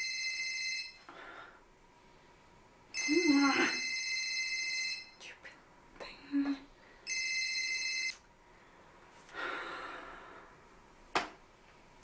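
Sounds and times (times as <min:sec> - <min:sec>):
phone electronic ringtone: 0:00.0 - 0:01.0, 0:03.0 - 0:05.1, 0:07.1 - 0:08.2.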